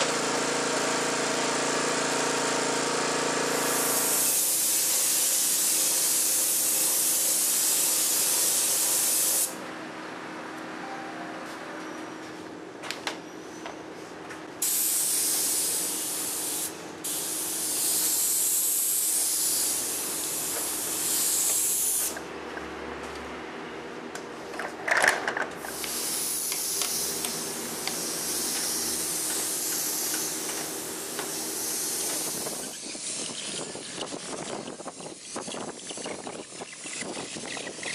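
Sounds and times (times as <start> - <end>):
spray gun hissing: 3.5 - 9.6, 14.6 - 22.2, 25.7 - 36.0.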